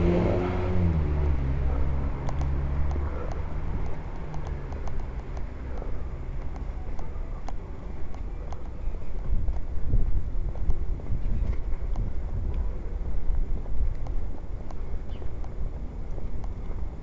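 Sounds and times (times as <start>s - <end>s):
car engine passing: 0.0s - 6.3s.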